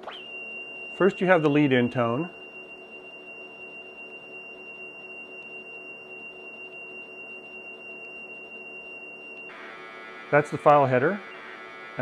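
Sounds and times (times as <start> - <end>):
high-pitched pure tone: 0.0 - 12.0
rough data signal: 0.0 - 12.0.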